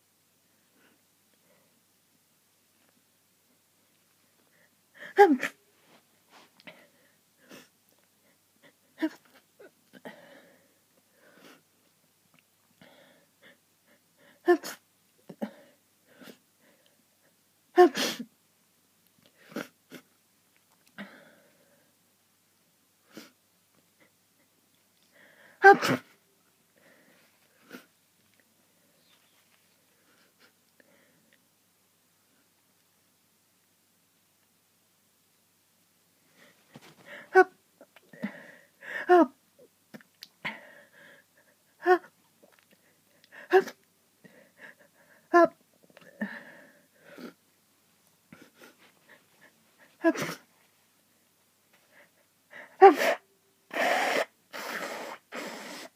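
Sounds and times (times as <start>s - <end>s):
person sneezing: 5.0s - 5.6s, 17.8s - 18.3s, 25.6s - 26.2s, 50.0s - 50.5s, 52.7s - 55.9s.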